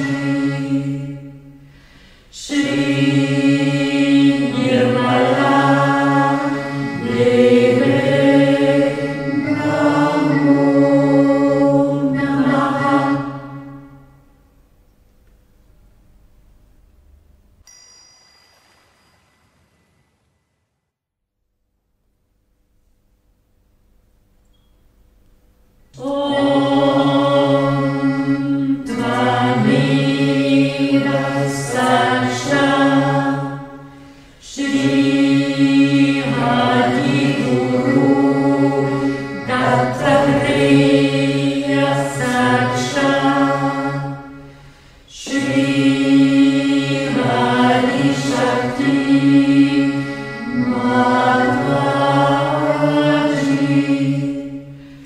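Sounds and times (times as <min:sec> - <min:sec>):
choir singing chant-like piece: 0:00.0 - 0:14.3, 0:26.0 - 0:55.0.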